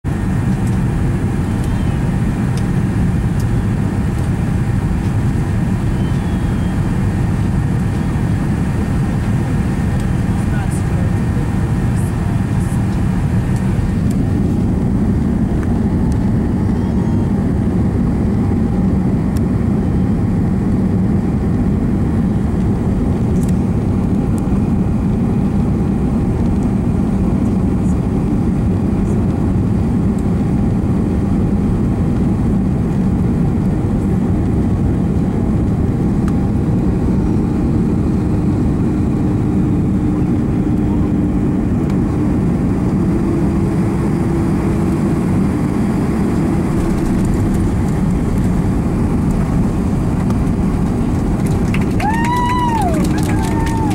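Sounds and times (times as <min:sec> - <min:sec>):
airliner cabin engine and airflow noise: 0:00.0 - 0:53.9
faint steady whine: 0:00.2 - 0:17.4.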